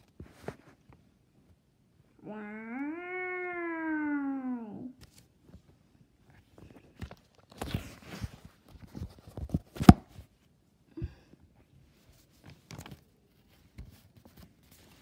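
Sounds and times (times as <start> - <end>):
handling rustles: 0.0 - 1.2, 5.0 - 10.5, 11.8 - 15.0.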